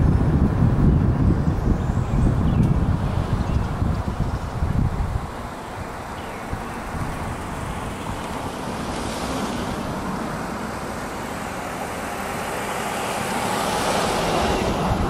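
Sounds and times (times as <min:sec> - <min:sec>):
passing cars whooshing: 0:00.0 - 0:15.0
tyre and road noise: 0:00.0 - 0:15.0.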